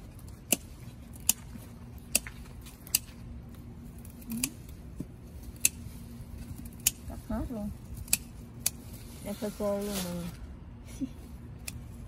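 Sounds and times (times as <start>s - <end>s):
scissors snipping stems: 0.2s - 5.8s, 6.4s - 8.8s, 11.6s - 12.0s.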